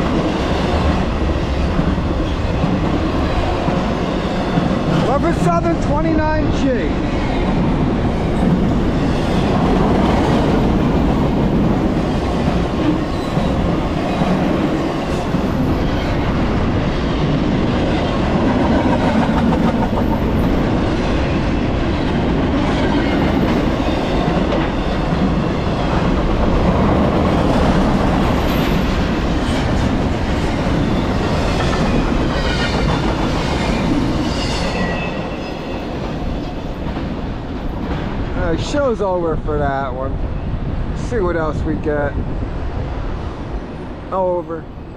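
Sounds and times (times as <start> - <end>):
steel wheels on rail: 0.0 - 38.7
high wheel squeals: 33.7 - 36.6.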